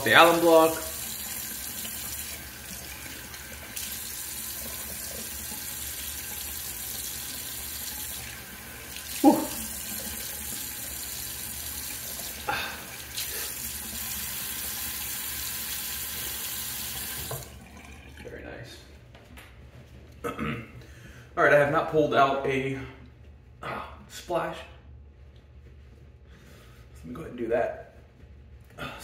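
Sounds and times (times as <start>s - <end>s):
tap water running into sink: 0.0s - 18.3s.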